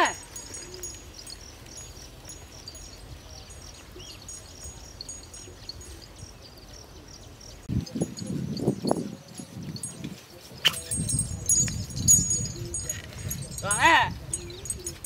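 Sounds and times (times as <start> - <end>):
insects chirping: 0.0 - 10.0
bird chirp: 0.0 - 15.0.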